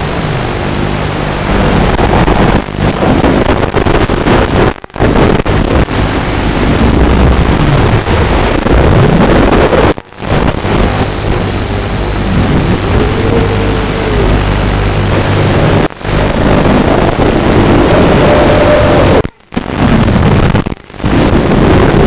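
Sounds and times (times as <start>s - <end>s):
wind noise: 0.0s - 22.0s
quadcopter motors whining: 11.0s - 19.2s.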